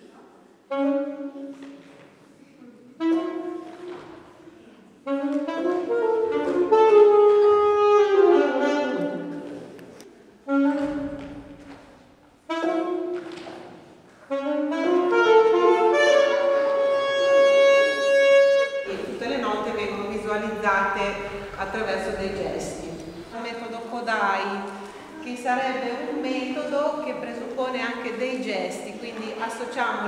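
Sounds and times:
saxophone melody: 0.7s - 1.6s, 2.7s - 4.4s, 5.0s - 9.6s, 10.4s - 13.3s, 14.2s - 23.4s.

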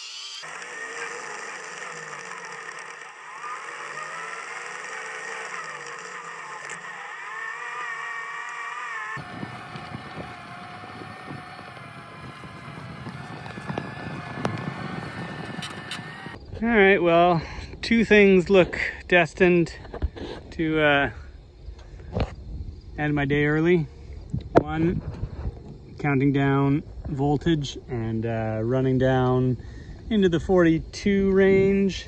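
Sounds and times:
electric motor whining under load: 0.0s - 16.4s.

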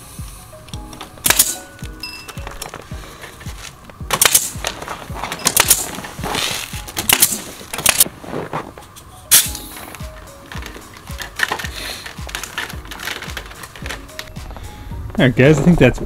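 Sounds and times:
background music: 0.0s - 16.0s
pneumatic nail gun firing: 1.2s - 1.7s, 4.1s - 4.8s, 5.4s - 8.1s, 9.3s - 9.7s.

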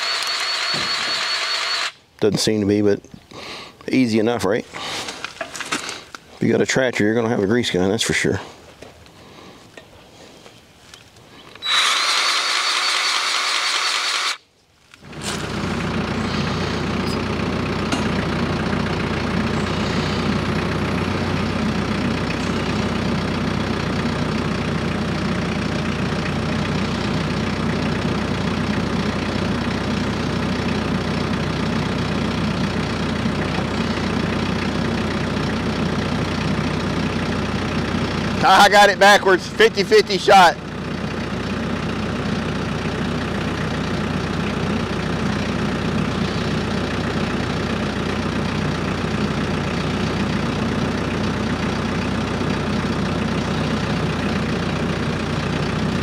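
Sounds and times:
powered grease gun whirring: 0.0s - 2.0s, 11.5s - 38.4s
tractor diesel engine running: 0.0s - 10.2s, 10.9s - 56.0s.

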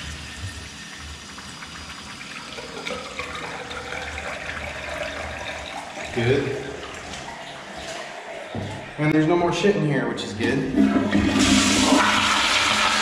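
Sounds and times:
water draining down urinal: 0.0s - 9.3s, 10.4s - 13.0s.

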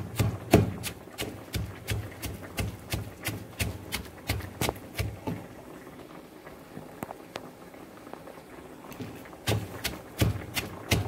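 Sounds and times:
pestle pounding in wooden mortar: 0.0s - 5.4s, 9.4s - 11.0s.

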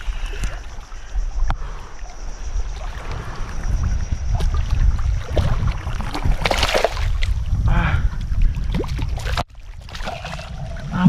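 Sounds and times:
water sloshing at shore: 0.0s - 7.5s, 8.2s - 11.0s
wind rumbling on microphone: 0.0s - 11.0s.

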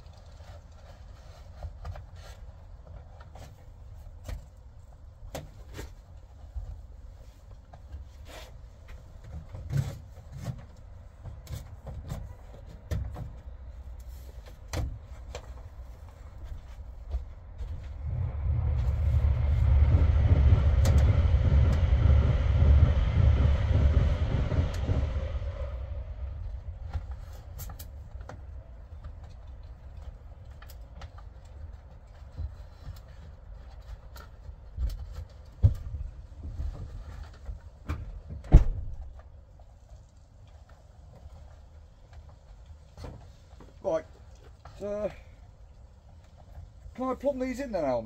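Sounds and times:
vehicle engine rumbling: 6.2s - 38.2s.

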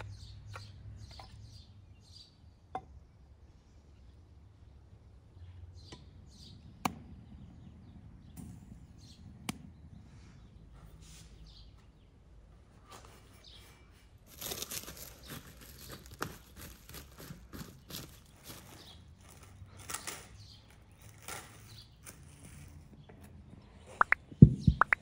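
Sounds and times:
cloth rustling: 14.1s - 20.0s
plastic wrap crinkling: 14.2s - 22.8s.

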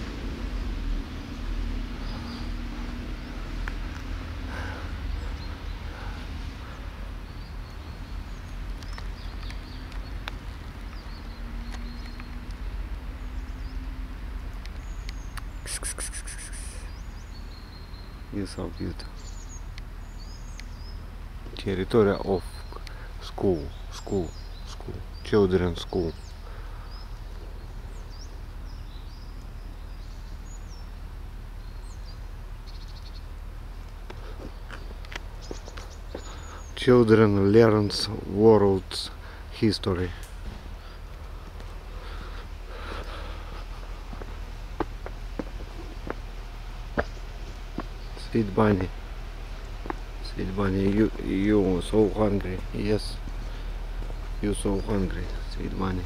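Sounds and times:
small birds chirping: 0.0s - 56.0s
steady low rumble: 0.0s - 56.0s
rapid bird trill: 14.8s - 21.0s
faint bird chirps: 14.8s - 31.0s, 34.2s - 37.4s.

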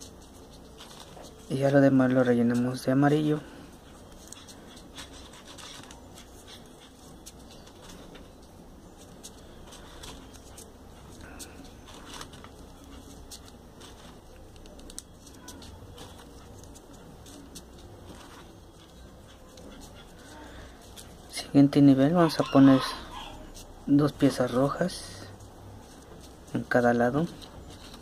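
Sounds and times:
paper rustling: 0.0s - 21.6s, 23.4s - 28.0s
low background hum: 0.0s - 28.0s
faint paper clicks: 9.0s - 18.4s.

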